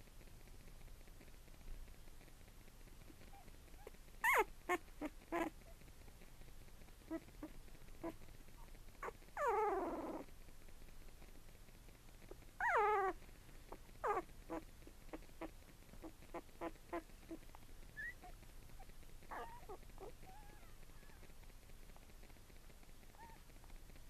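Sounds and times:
faint puppy squeaks: 0:03.1 - 0:05.9, 0:07.0 - 0:10.3, 0:12.2 - 0:13.2, 0:13.8 - 0:21.4, 0:23.1 - 0:23.6
puppies whining: 0:03.3 - 0:05.5, 0:09.0 - 0:10.3, 0:12.6 - 0:13.2, 0:14.0 - 0:17.4, 0:18.0 - 0:18.4, 0:19.3 - 0:21.1.

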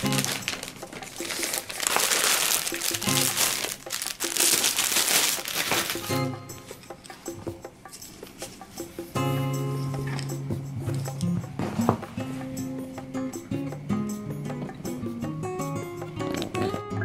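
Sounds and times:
plastic bag crinkling: 0:00.0 - 0:06.2
background music: 0:00.0 - 0:17.0.

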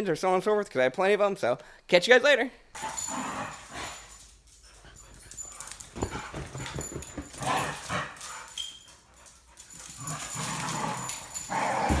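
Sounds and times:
dogs play-fighting: 0:02.8 - 0:12.0.

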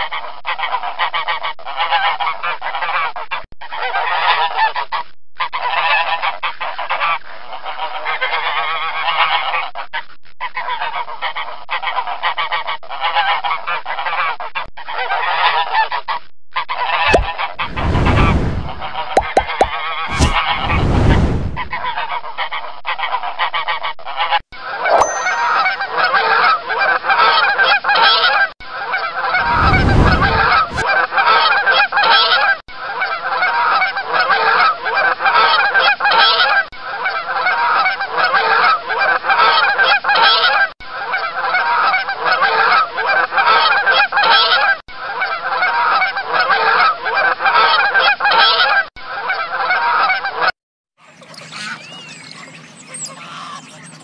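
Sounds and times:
short low rumble: 0:17.1 - 0:21.9, 0:29.4 - 0:30.8.

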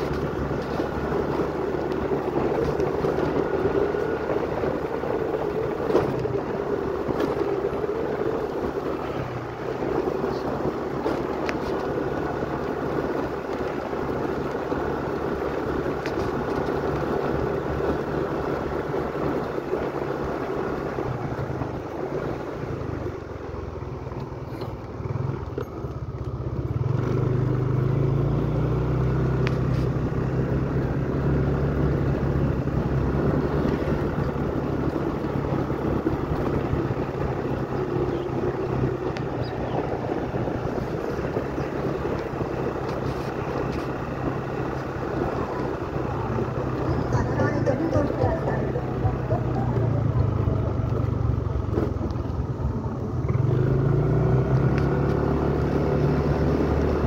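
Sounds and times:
small motorcycle engine: 0:00.0 - 0:57.0.

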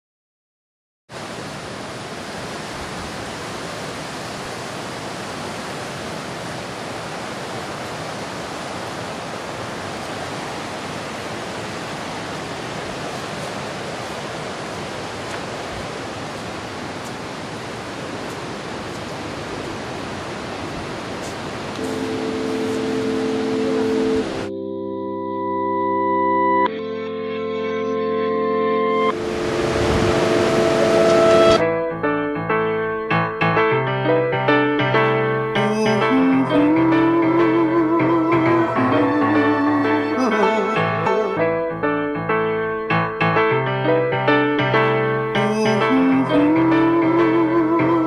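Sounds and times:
steady rushing noise: 0:01.2 - 0:24.5, 0:29.1 - 0:32.1
organ-like music chords: 0:21.8 - 0:48.0.

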